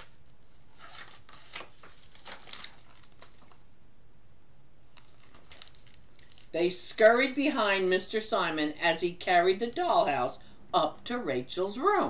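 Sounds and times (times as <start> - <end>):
paper pages rustling: 0.0 - 3.6, 4.8 - 6.6.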